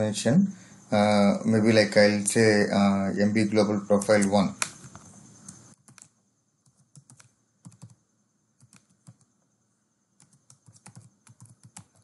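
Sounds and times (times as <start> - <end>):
faint keyboard typing: 3.8 - 9.5, 10.2 - 12.0.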